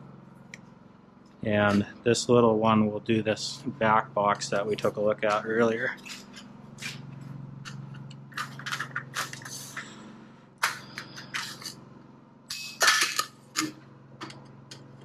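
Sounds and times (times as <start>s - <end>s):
steady low hum: 0.0s - 15.0s
sheet metal clicks and crinkles: 7.6s - 9.9s.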